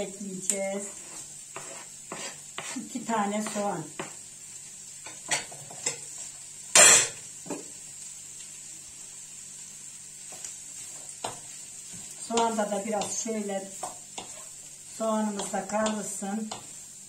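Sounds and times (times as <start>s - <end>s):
low sizzle of frying: 0.0s - 17.0s
onions clattering into pan: 5.0s - 7.8s.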